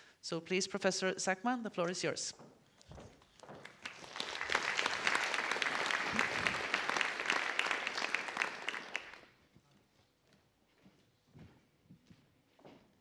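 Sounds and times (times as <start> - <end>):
audience applauding: 3.6 - 9.3.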